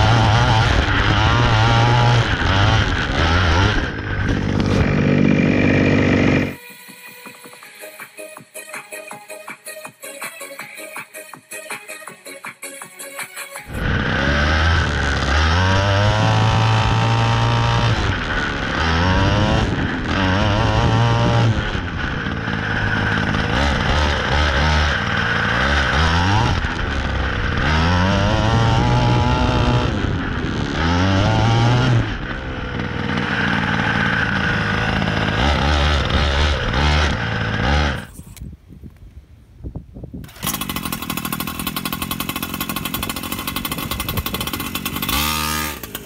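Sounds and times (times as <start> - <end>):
model truck engine revving: 0.0 - 6.6, 13.7 - 38.4, 40.2 - 46.0.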